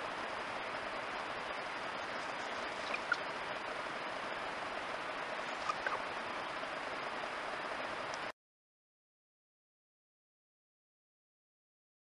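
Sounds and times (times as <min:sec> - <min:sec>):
rabbit squeaking: 0:02.0 - 0:03.6, 0:05.4 - 0:06.1.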